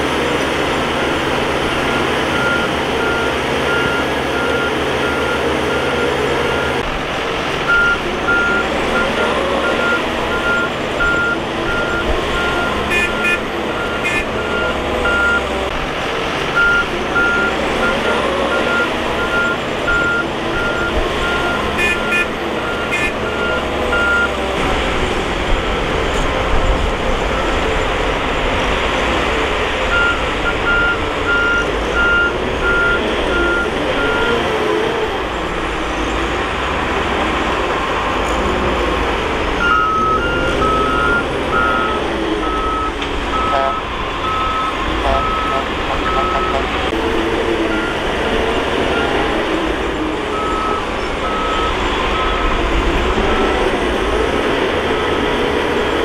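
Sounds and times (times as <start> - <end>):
bulldozer diesel engine running: 0.0 - 56.0
reverse alarm beeping: 1.9 - 6.8, 7.7 - 15.5, 16.6 - 24.4, 29.9 - 34.4, 39.6 - 46.6, 50.3 - 52.6.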